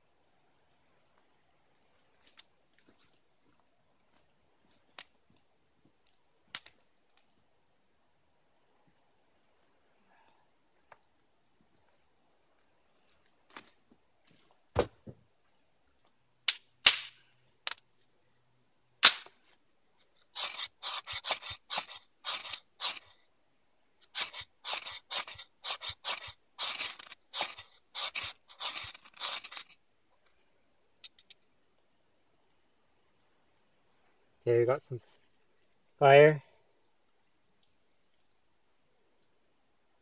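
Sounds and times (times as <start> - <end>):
knife scraping ferrocerium rod: 20.4 - 23.1, 24.1 - 29.8.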